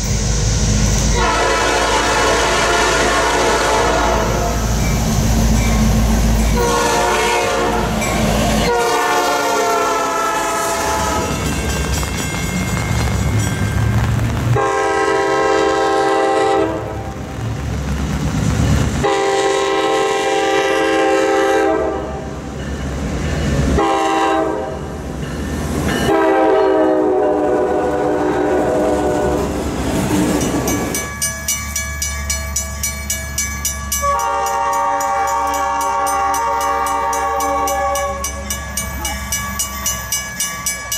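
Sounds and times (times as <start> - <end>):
locomotive air horn: 1.1 - 4.7, 6.6 - 11.4, 14.6 - 17.2, 19.0 - 22.3, 23.8 - 24.9, 26.1 - 29.5, 34.0 - 38.4
train wheels clattering on rails: 4.5 - 16.4, 29.4 - 40.9.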